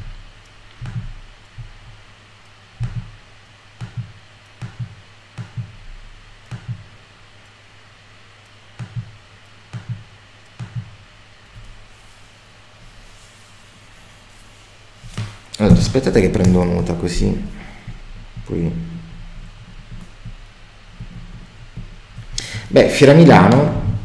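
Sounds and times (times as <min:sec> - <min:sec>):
low hum: 0:00.0 - 0:24.0
computer mouse clicks: 0:00.4 - 0:01.7, 0:06.4 - 0:06.9, 0:08.4 - 0:11.8.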